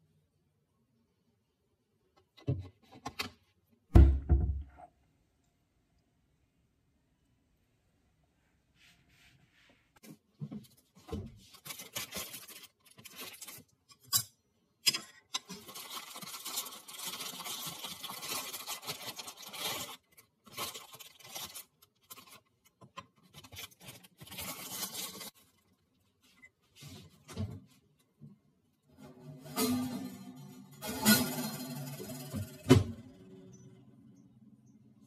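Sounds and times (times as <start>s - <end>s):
plastic bag crinkling: 11.5s - 13.8s, 15.5s - 25.9s.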